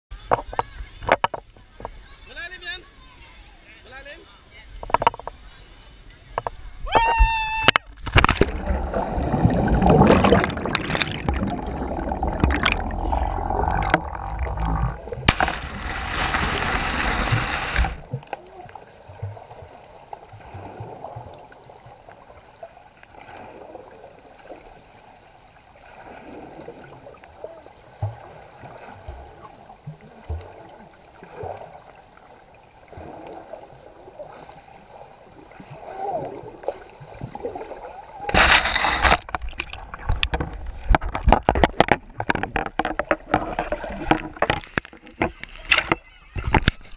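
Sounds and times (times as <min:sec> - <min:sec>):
water churning and bubbles rushing: 0:08.0 - 0:46.9
muffled underwater hiss: 0:08.2 - 0:41.3.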